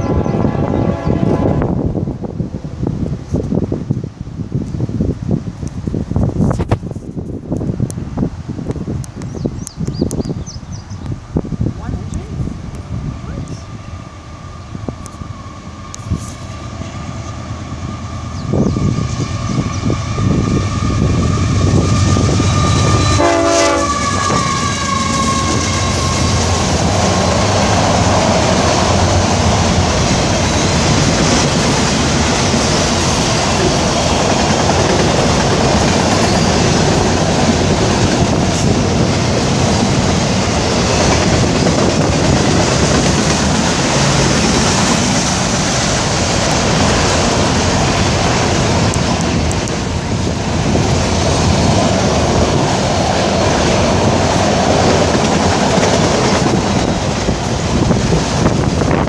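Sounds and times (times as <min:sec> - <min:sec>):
train horn blast: 0:00.0 - 0:02.0, 0:19.6 - 0:26.6
train cars rolling past: 0:10.2 - 0:59.0.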